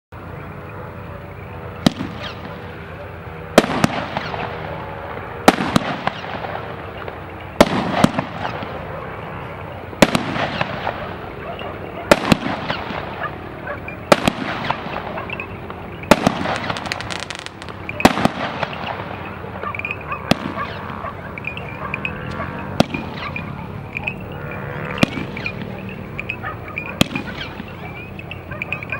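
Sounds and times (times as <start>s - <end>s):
firework hiss and crackle: 1.4s - 21.5s
firework bangs: 1.6s - 24.3s, 24.9s - 28.9s.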